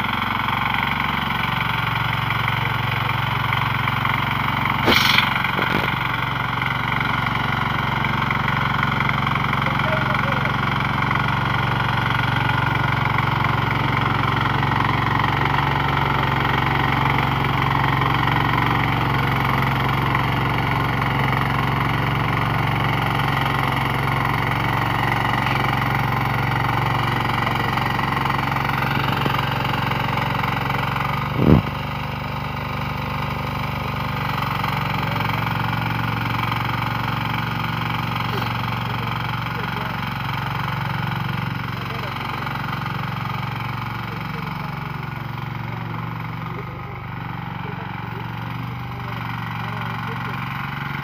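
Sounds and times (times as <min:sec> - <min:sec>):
tiller engine running: 0:00.0 - 0:51.0.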